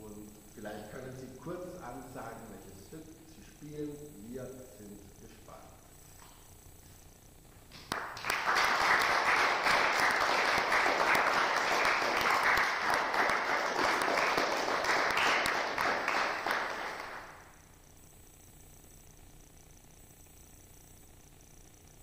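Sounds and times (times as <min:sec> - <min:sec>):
audience applauding: 0:07.7 - 0:17.4.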